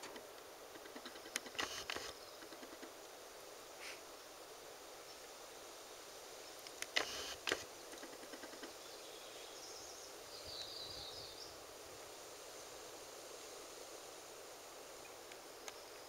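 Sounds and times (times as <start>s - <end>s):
small clicks: 0.0s - 2.9s, 6.6s - 8.8s
high bird song: 8.7s - 11.6s.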